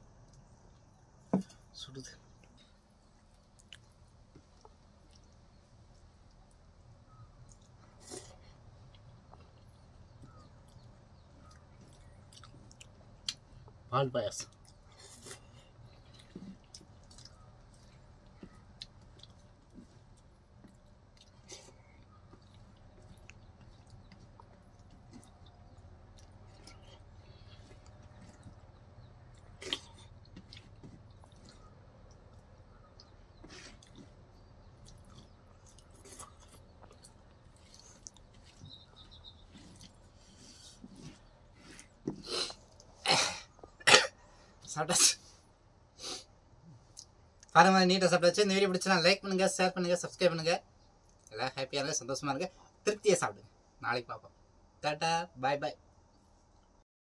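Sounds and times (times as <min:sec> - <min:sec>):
chewing and squishing food: 0:00.0 - 0:44.7, 0:46.6 - 0:47.6, 0:50.8 - 0:51.4
mouth clicks and smacks: 0:07.4 - 0:13.8, 0:46.7 - 0:47.6, 0:51.0 - 0:51.4.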